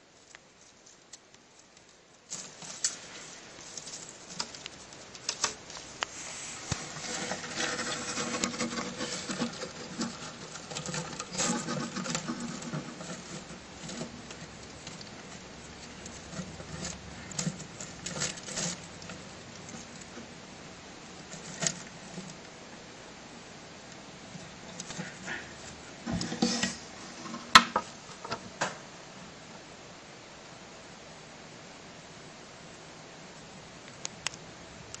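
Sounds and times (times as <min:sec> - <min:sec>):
rustling on dry leaf litter: 0:00.0 - 0:22.6.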